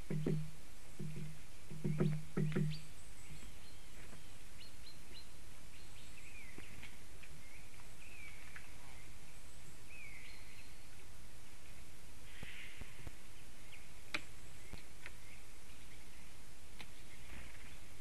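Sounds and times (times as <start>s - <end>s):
small bird chirps: 0.0s - 11.0s
microphone hiss: 0.0s - 18.0s.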